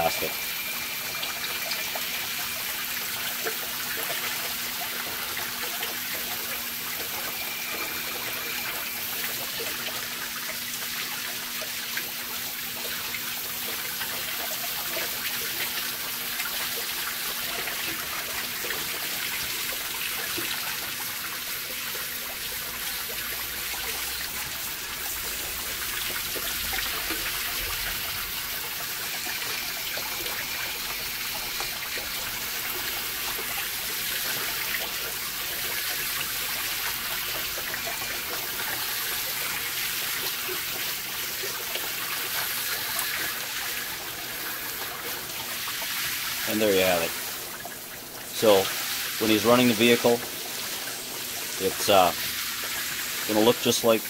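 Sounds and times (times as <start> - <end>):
water spray pattering on metal: 0.0 - 54.0.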